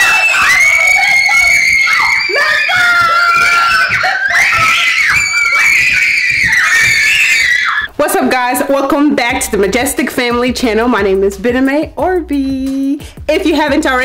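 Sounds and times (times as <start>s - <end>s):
girls screaming and squealing: 0.0s - 8.0s.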